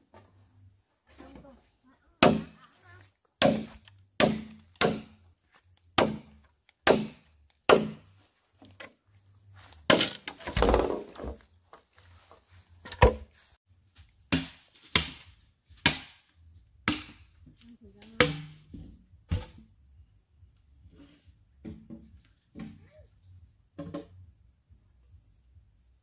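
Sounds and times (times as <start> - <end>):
tool chopping wood: 2.2 - 2.6, 3.4 - 5.2, 5.9 - 8.2, 9.9 - 11.4, 12.8 - 13.3, 14.3 - 17.2, 18.2 - 19.6
wood breaking: 9.9 - 11.4.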